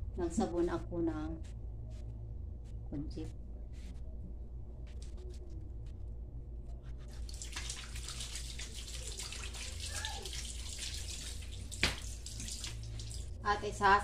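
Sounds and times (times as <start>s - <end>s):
water running and splashing: 7.1s - 13.4s.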